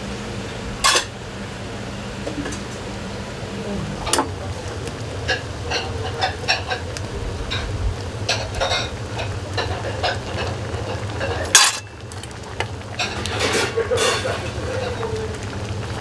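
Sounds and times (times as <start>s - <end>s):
steady low rumble: 3.0s - 9.6s.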